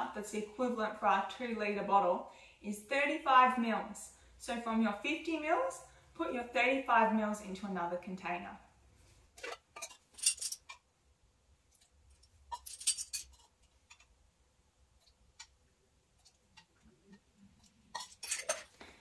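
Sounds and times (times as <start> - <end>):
metal measuring spoons jangling: 9.8 - 10.7, 12.5 - 13.5, 18.0 - 18.7.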